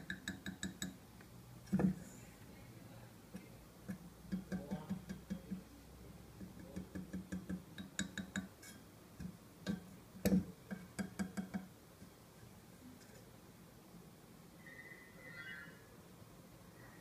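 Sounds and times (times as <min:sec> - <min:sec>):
fingers tapping on stand: 0:00.0 - 0:01.0, 0:06.4 - 0:08.5, 0:09.2 - 0:11.7.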